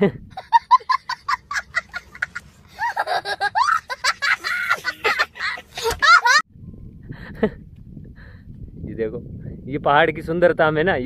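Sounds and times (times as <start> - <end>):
child laughing: 0.3 - 6.4.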